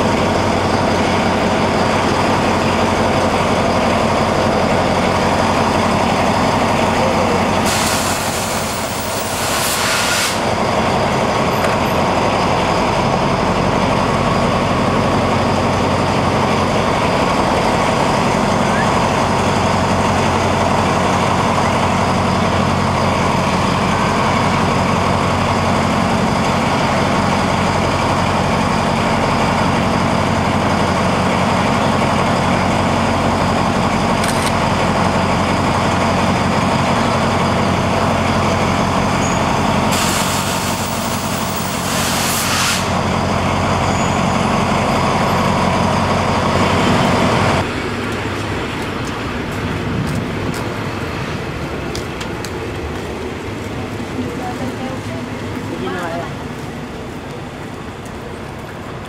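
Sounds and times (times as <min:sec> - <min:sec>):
diesel locomotive engine drone: 0:00.0 - 0:59.0
air brakes hissing: 0:07.5 - 0:10.6, 0:39.2 - 0:43.0.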